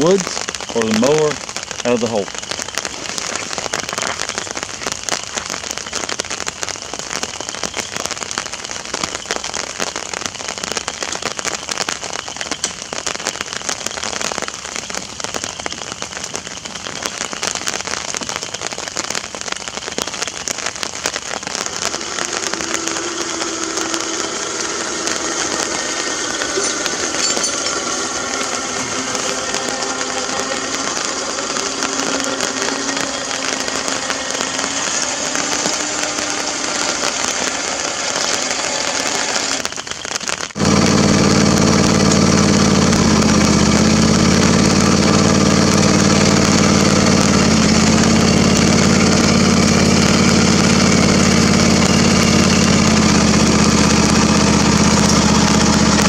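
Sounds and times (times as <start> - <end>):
rain on an umbrella: 0.0 - 56.0
electric winch motor running: 21.6 - 39.7, 40.6 - 56.0.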